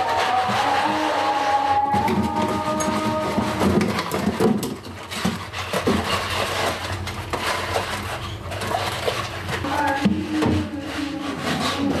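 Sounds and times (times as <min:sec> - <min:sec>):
plastic container knocking and rubbing: 0:00.0 - 0:12.0.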